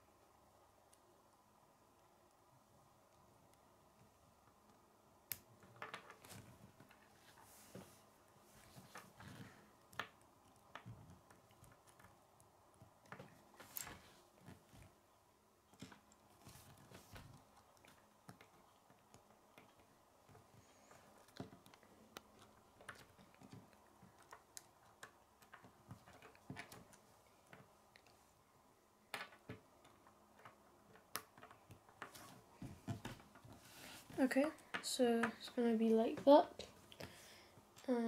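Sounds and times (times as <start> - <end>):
plastic pieces clicking on wooden table: 5.7 - 6.2, 29.1 - 32.2.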